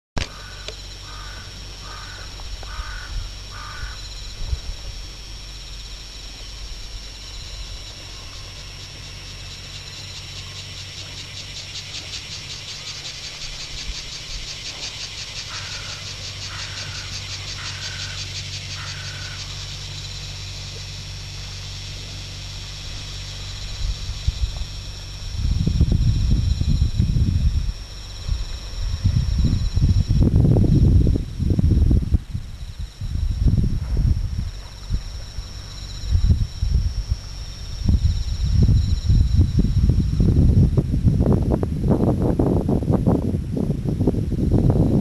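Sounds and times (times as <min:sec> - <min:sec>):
faint high whine: 0:00.2 - 0:45.0
faint high pulsing trill: 0:00.3 - 0:40.8
low rumble: 0:16.0 - 0:45.0.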